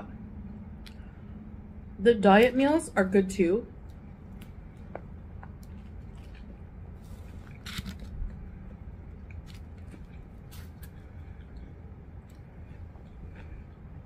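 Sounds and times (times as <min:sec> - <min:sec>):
person chewing crunchy sandwich: 0:04.3 - 0:14.0.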